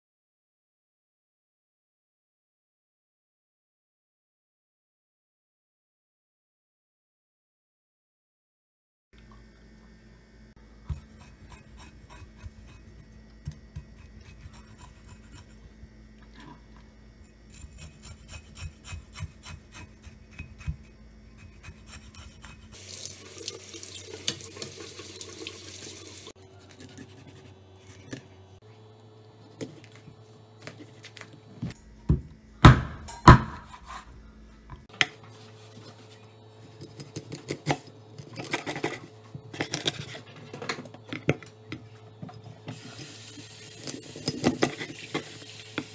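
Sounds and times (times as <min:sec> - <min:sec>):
knife scraping fish scales: 0:10.9 - 0:13.2, 0:13.8 - 0:15.6, 0:17.2 - 0:22.8, 0:33.6 - 0:34.1
knife cutting on board: 0:17.5 - 0:22.8.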